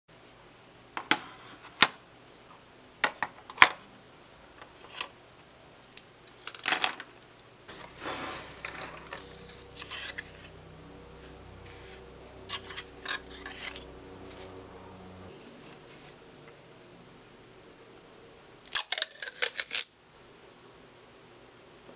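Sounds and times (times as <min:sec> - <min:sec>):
paper cards rubbing and sliding: 0:07.7 - 0:10.5, 0:11.2 - 0:14.7, 0:15.3 - 0:16.7.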